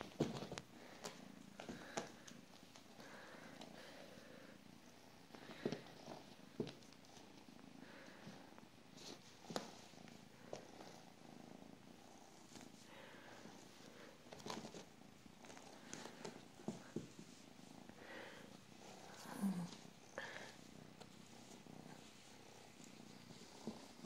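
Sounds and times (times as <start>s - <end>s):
soft taps and rustles: 0.0s - 3.0s, 5.3s - 7.5s, 9.0s - 10.8s, 14.2s - 17.5s, 21.0s - 24.0s
kitten purring: 0.0s - 24.0s.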